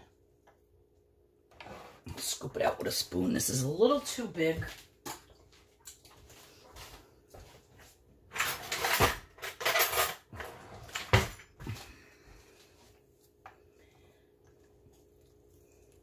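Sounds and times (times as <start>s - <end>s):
metal cutlery rattling: 8.4s - 10.3s.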